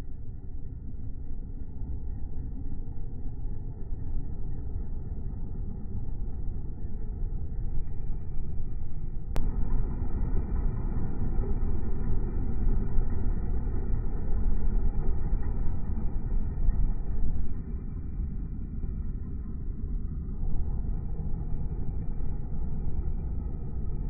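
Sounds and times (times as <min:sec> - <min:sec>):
heater fan running: 0:06.0 - 0:24.0.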